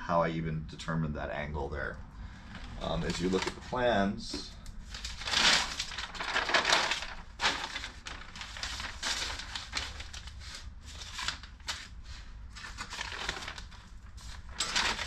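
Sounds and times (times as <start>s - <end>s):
paper sheets rustling: 2.6s - 15.0s.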